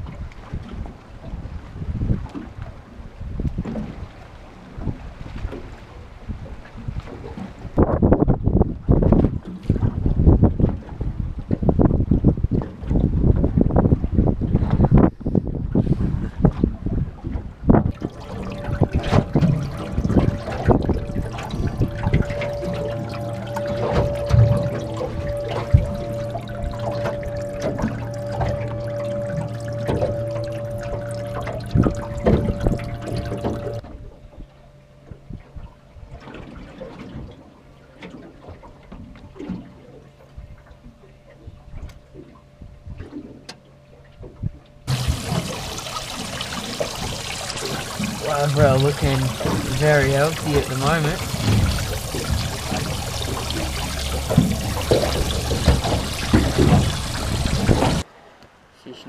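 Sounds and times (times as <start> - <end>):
water sloshing and splashing: 16.5 - 33.9, 35.6 - 40.8, 44.9 - 58.4
steady hum: 17.9 - 33.8, 44.9 - 58.0.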